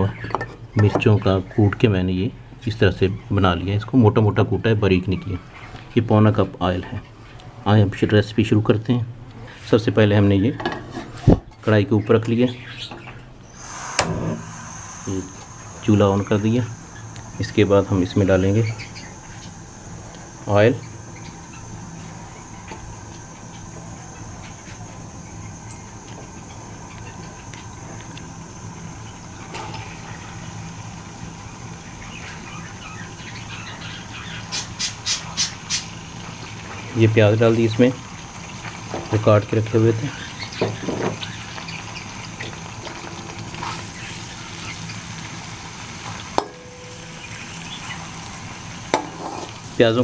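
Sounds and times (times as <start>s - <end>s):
stove hum and hiss: 0.0s - 50.0s
onions rustling into oil: 13.4s - 50.0s.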